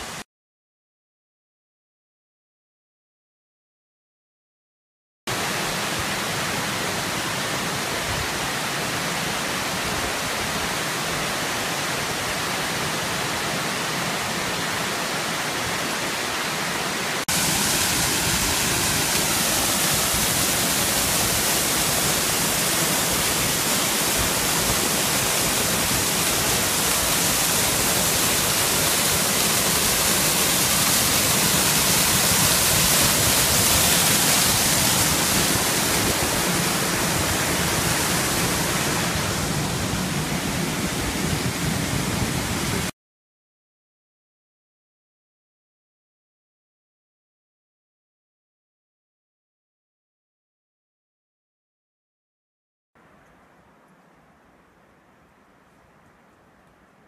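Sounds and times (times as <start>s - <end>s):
waterfall rushing: 5.3s - 42.9s.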